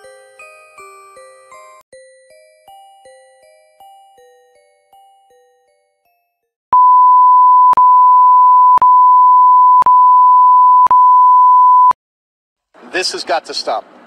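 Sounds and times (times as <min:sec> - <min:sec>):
music-box-like chiming notes: 0:00.0 - 0:06.5
high electronic beep tone: 0:06.8 - 0:12.0.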